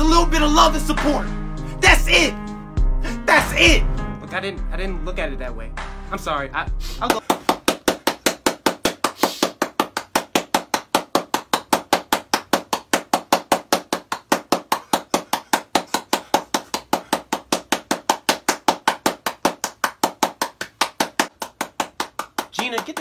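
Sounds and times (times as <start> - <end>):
rapid handclapping: 7.0 - 23.0.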